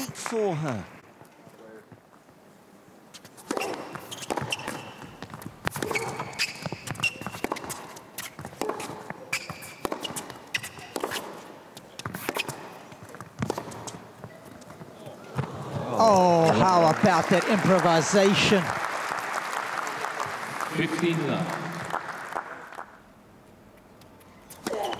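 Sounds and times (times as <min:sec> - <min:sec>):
shoes squeaking on court: 0:03.1 - 0:15.8, 0:23.8 - 0:24.9
tennis ball struck by rackets: 0:03.4 - 0:14.0.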